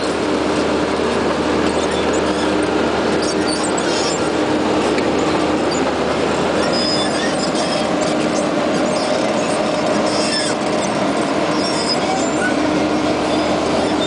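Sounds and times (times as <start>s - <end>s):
diesel engine running: 0.0s - 14.0s
brief high squeaks: 6.6s - 14.0s.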